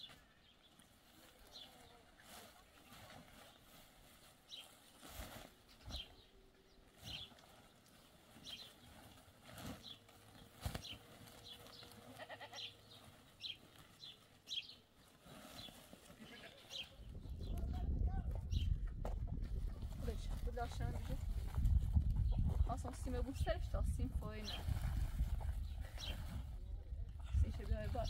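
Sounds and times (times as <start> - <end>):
goat bleating: 11.9 - 12.8, 16.2 - 16.9.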